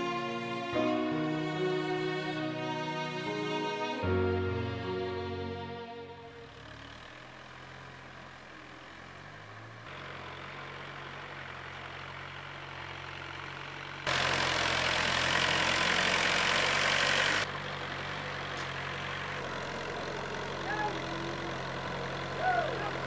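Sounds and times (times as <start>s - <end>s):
tractor engine idling: 6.2s - 23.0s.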